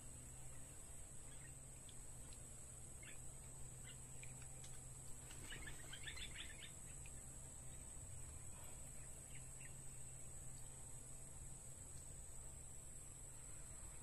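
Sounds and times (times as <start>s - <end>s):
small bird chirps: 1.2s - 2.4s, 3.0s - 7.8s, 9.0s - 10.7s.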